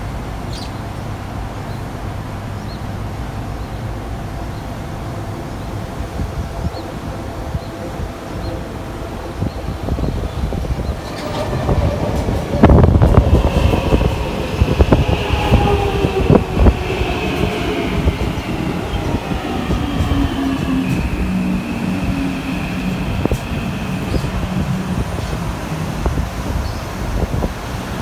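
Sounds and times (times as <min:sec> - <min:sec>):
train motor whine: 0:07.0 - 0:26.6.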